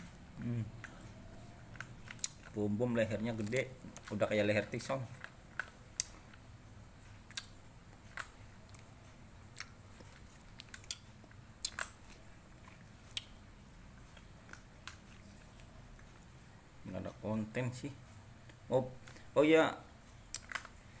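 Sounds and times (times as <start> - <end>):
cat chewing food: 7.1 - 16.4.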